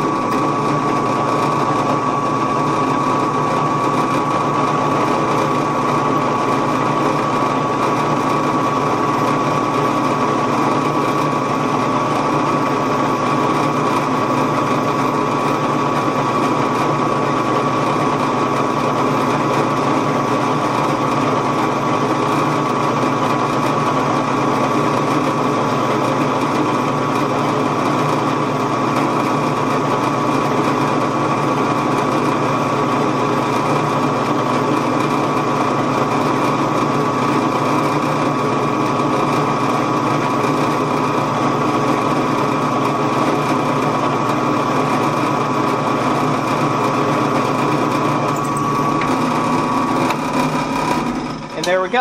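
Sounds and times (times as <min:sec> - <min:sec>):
drill press boring into steel: 0:47.8 - 0:52.0.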